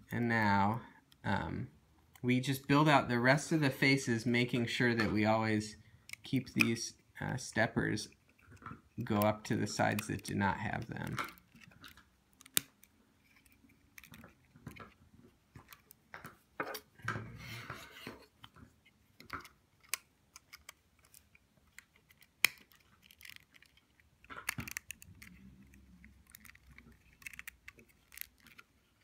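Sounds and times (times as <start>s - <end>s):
plastic bricks clicking and rattling: 18.6s - 29.0s.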